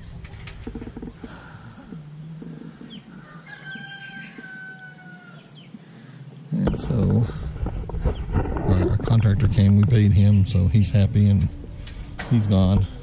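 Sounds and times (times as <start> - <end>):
rooster crowing: 3.1 - 5.6.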